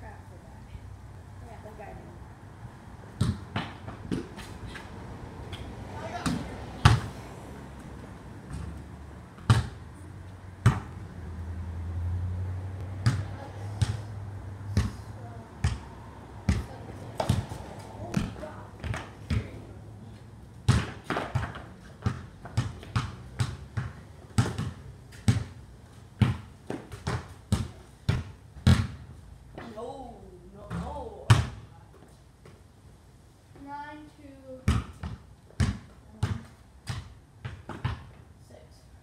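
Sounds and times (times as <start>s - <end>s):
basketball bouncing on concrete: 3.1s - 4.6s, 5.5s - 7.1s, 9.4s - 9.8s, 10.6s - 11.0s, 13.0s - 14.1s, 15.6s - 15.9s, 16.5s - 19.7s, 20.6s - 25.6s, 26.2s - 29.8s, 30.6s - 31.7s, 34.6s - 38.2s.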